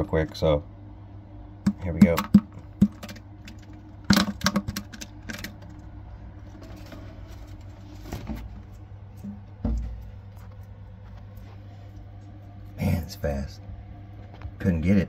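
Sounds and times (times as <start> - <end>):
steady low hum: 0.0 - 15.0
sharp handling clicks and taps: 1.6 - 5.7
soft bump: 9.2 - 10.3.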